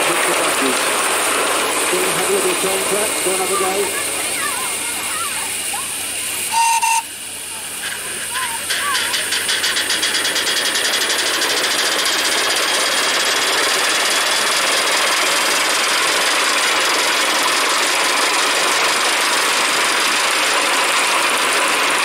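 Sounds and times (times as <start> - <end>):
steam locomotive exhaust beating: 0.0 - 22.0.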